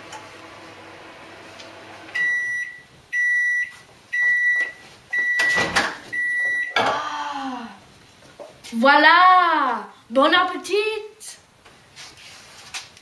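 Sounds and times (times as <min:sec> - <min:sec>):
microwave beeping: 0:00.0 - 0:06.8.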